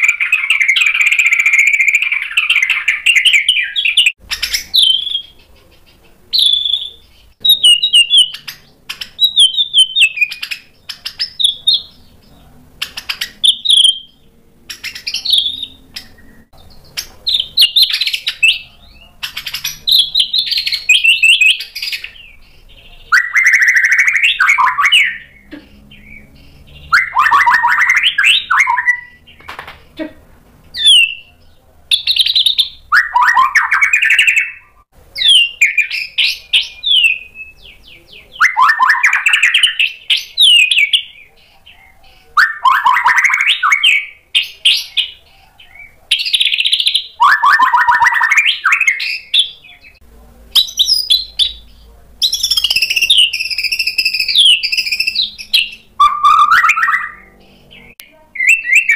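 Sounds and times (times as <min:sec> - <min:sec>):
bird singing loudly: 0:00.0 - 0:05.5, 0:06.3 - 0:29.5, 0:30.7 - 0:31.3, 0:31.9 - 0:50.0, 0:50.6 - 0:58.9.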